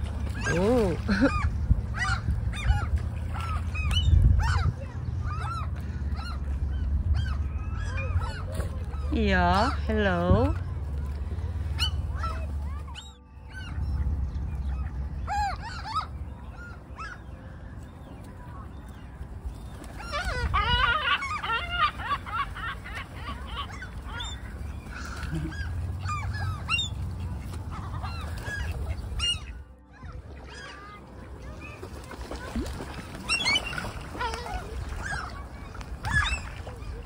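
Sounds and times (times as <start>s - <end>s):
steady low rumble: 0.0s - 19.8s
gulls squawking: 0.0s - 37.0s.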